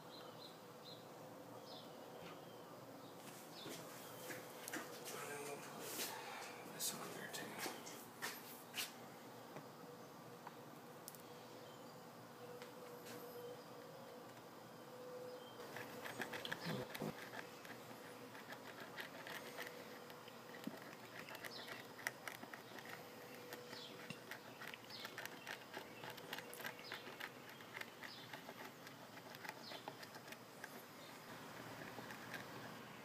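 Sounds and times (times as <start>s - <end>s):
glue bottle crackling and ticking: 15.6s - 32.8s.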